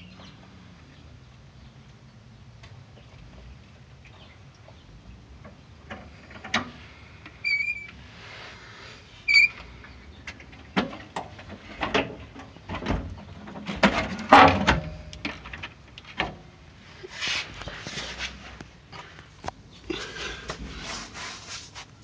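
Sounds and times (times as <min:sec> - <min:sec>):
metal clunks: 0:10.3 - 0:16.4.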